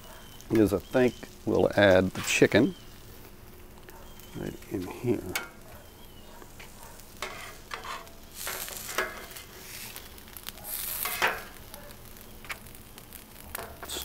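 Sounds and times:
chicken sizzling on a griddle: 0.0s - 14.0s
metal spatula scraping: 6.6s - 10.0s, 10.7s - 11.6s.

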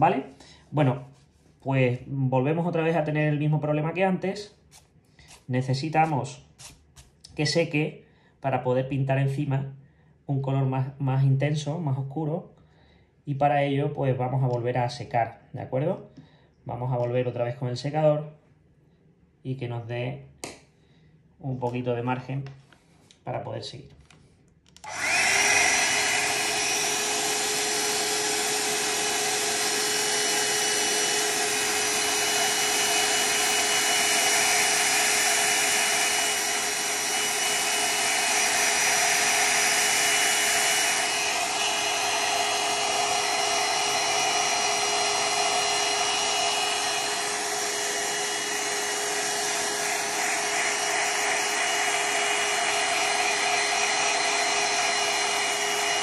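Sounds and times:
hair dryer blowing: 24.8s - 56.0s.

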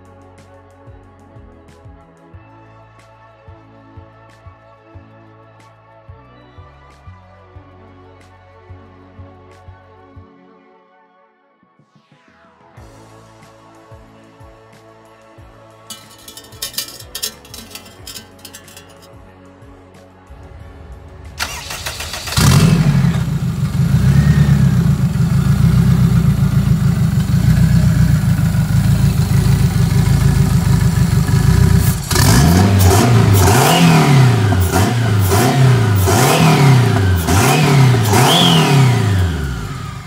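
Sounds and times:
car engine cranking and running: 21.4s - 40.0s
car engine revving: 21.4s - 40.0s.

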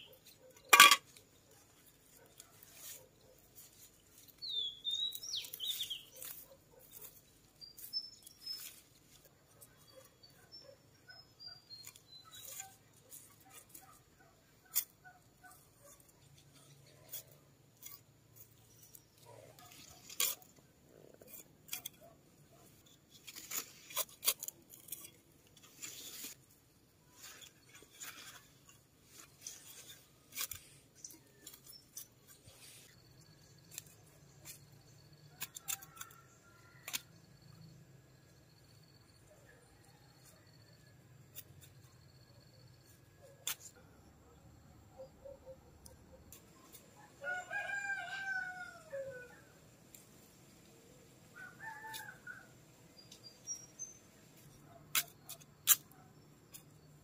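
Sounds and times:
hand trowel scraping soil: 0.0s - 34.8s, 53.0s - 56.9s.

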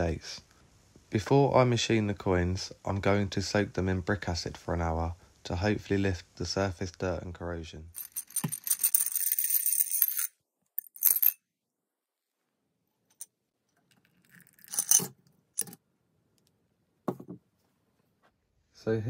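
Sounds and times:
coins jingling against glass jar: 8.0s - 11.4s, 14.2s - 15.8s.

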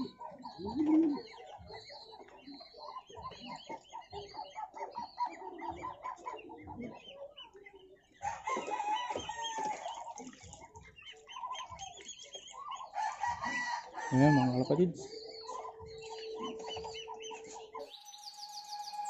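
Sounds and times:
chickens clucking: 0.0s - 18.0s
rooster crowing: 13.0s - 14.5s.

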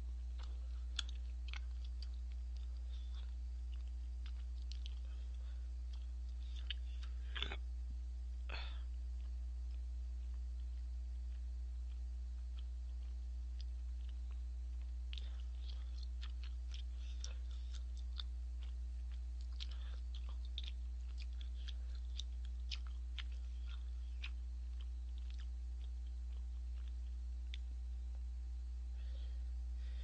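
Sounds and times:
person chewing: 0.0s - 7.7s, 8.4s - 28.2s
low electrical hum: 0.0s - 30.0s.

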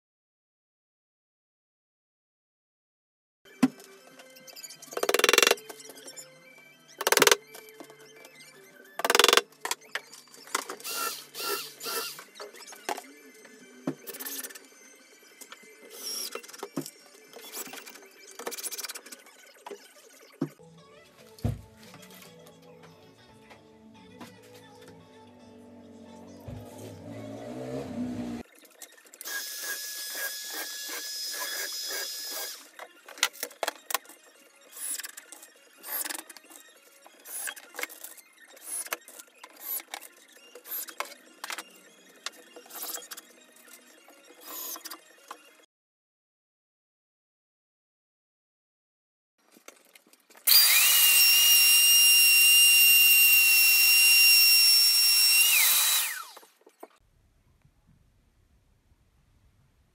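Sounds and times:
screwdriver driving screw whining: 4.9s - 5.8s, 7.0s - 7.8s, 9.0s - 13.0s, 50.5s - 56.5s.

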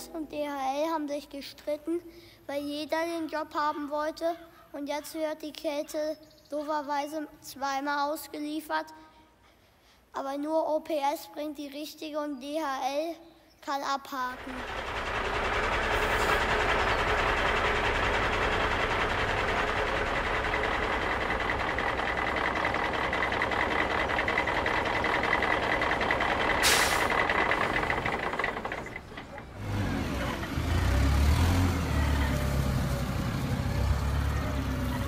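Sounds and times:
model truck mechanical running: 14.2s - 35.0s
low throbbing engine: 14.3s - 35.0s
short sharp hiss: 26.6s - 27.2s.

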